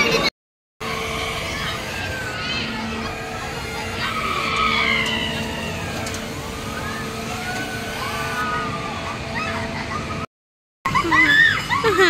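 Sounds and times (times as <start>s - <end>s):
amusement ride hum: 0.0s - 10.3s, 10.9s - 12.0s
high squeals: 0.8s - 10.2s.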